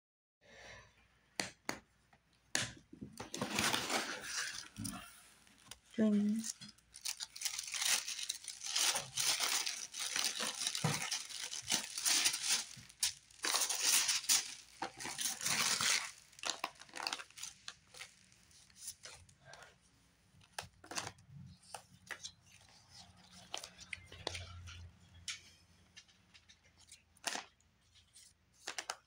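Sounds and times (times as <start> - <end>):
plastic packaging crinkling: 3.2 - 19.5, 26.4 - 29.0
tissue paper rustling and crinkling: 3.3 - 19.5.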